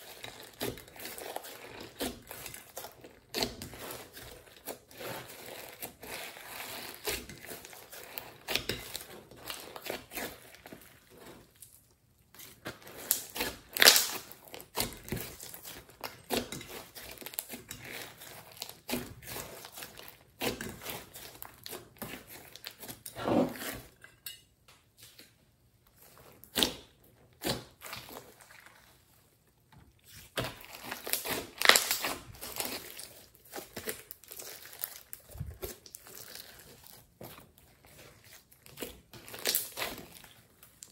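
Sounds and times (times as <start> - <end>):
slime crackling and popping: 12.5 - 22.8, 30.1 - 40.9.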